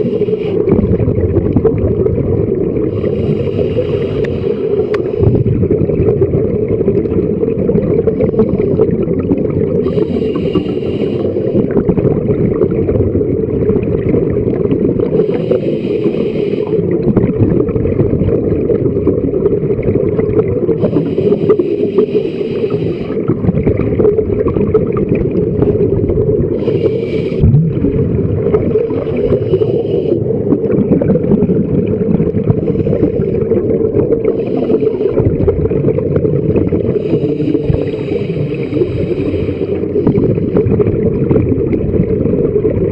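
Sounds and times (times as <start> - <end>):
regulator breath hiss: 0.0 - 0.7, 2.9 - 5.2, 9.8 - 11.7, 15.2 - 16.9, 20.8 - 23.3, 26.5 - 27.4, 28.9 - 30.4, 34.2 - 35.2, 36.8 - 40.1
muffled underwater rumble: 0.0 - 42.9.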